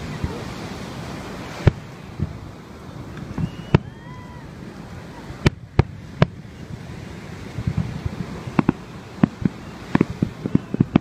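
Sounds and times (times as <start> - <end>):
wind noise on microphone: 0.0 - 11.0
fireworks bangs and pops: 1.4 - 2.4, 3.0 - 4.0, 5.4 - 11.0.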